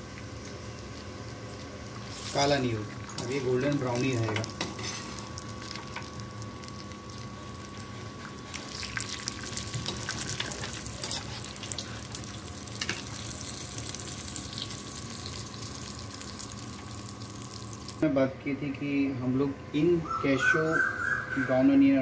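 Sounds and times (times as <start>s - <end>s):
nuts sizzling in hot oil: 0.0s - 18.0s.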